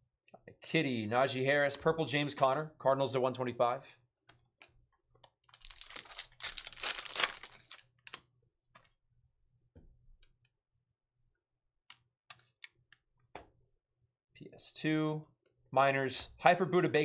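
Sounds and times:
foil wrapper crinkling: 0:05.5 - 0:08.2.

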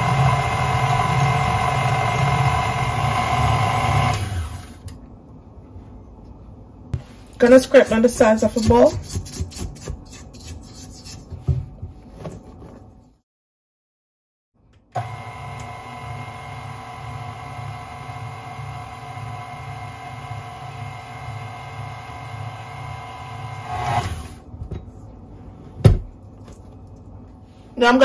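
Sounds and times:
stand mixer motor humming: 0:00.0 - 0:04.8, 0:15.0 - 0:24.3
spatula scraping a metal bowl: 0:08.3 - 0:11.5.

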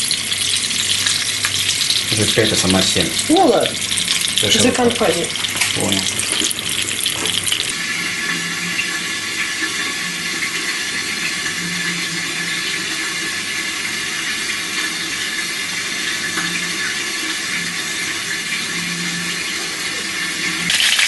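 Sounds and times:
oil crackling: 0:00.0 - 0:07.7, 0:20.6 - 0:21.0
fish sizzling in frying pan: 0:00.0 - 0:11.6, 0:20.2 - 0:21.0.

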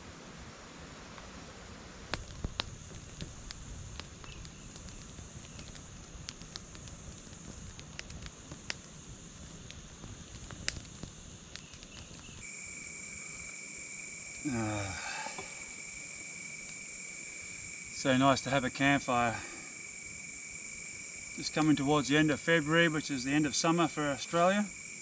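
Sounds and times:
crickets chirping: 0:00.0 - 0:25.0
campfire crackling and popping: 0:02.0 - 0:25.0
short voice sound: 0:14.5 - 0:15.0.

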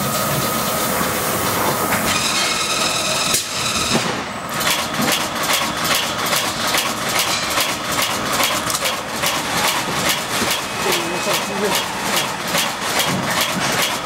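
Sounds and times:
machinery hum: 0:00.0 - 0:14.0
machinery ticking clatter: 0:04.5 - 0:14.0.

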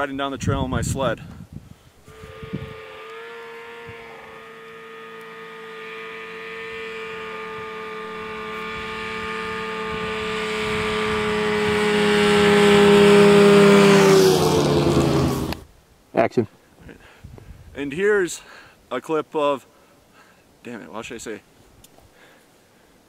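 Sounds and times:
snowmobile engine passing: 0:02.0 - 0:15.6.

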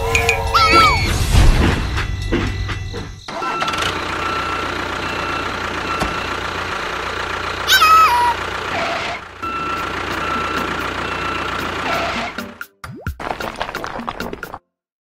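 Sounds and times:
truck reversing alarm beeps: 0:00.0 - 0:12.5
low engine hum: 0:00.0 - 0:12.6
cartoon falling pitch sound: 0:00.3 - 0:01.3, 0:07.7 - 0:08.4.

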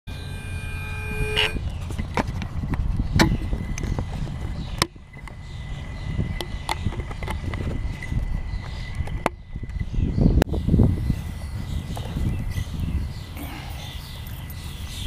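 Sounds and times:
steady electronic tone: 0:00.1 - 0:01.7.

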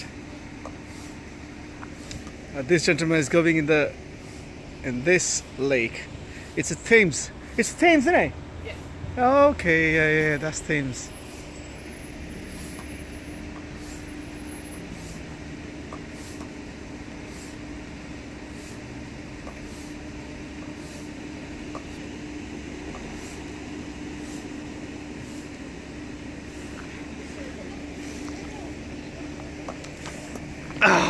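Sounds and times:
background hum: 0:00.0 - 0:31.0
hand pump air hiss: 0:01.8 - 0:02.4, 0:13.7 - 0:14.1, 0:14.7 - 0:15.4, 0:16.0 - 0:16.6, 0:17.2 - 0:17.6, 0:18.5 - 0:22.0, 0:24.1 - 0:24.6, 0:25.2 - 0:25.6.

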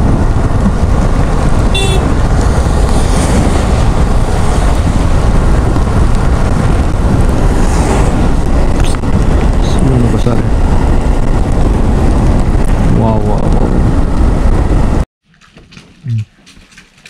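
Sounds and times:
wind and road rumble: 0:00.0 - 0:17.0
motorcycle horn toot: 0:01.7 - 0:02.1.

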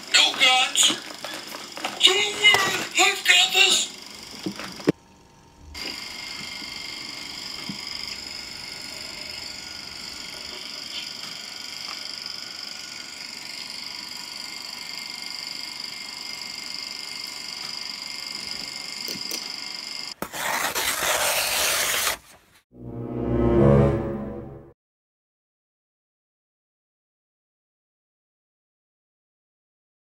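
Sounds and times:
paper tearing: 0:20.2 - 0:22.4.

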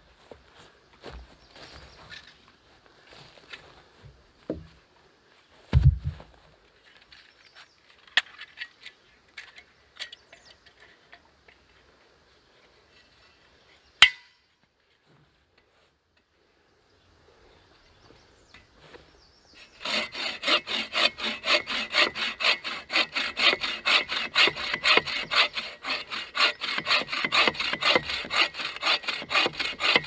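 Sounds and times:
dull thump: 0:05.7 - 0:06.4.

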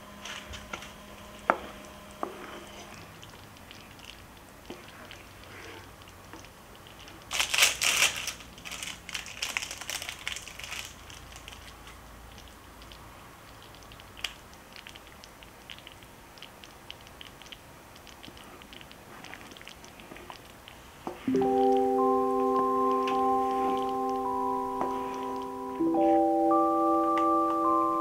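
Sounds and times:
wooden spoon stirring in pot: 0:01.4 - 0:07.3, 0:12.9 - 0:27.6
plastic wrapper crinkling: 0:06.7 - 0:12.0.

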